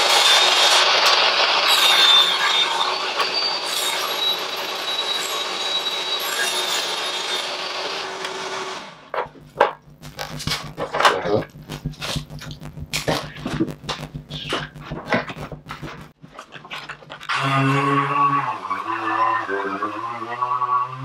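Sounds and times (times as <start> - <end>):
table saw cutting plywood: 0.0 - 9.7, 17.4 - 21.0.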